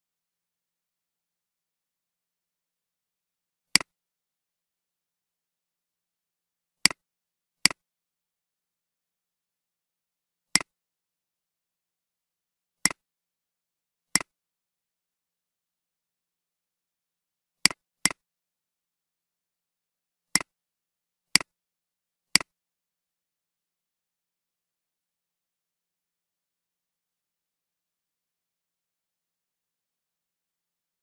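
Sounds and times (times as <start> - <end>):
computer mouse clicks: 22.3 - 22.5.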